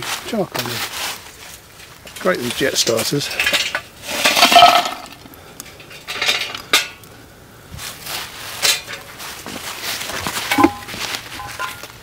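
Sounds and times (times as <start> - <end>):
charcoal clattering into clay pot: 1.8 - 7.0, 8.6 - 9.2, 10.3 - 12.0.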